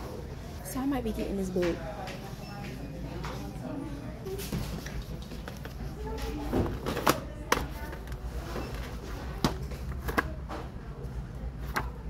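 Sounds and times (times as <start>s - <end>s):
books and plastic cases being handled: 4.3s - 12.0s.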